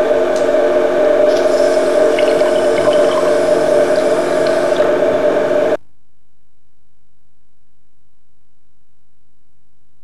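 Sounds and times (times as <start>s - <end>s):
steady machine hum: 0.0s - 5.8s
faint liquid splashes: 1.3s - 4.7s.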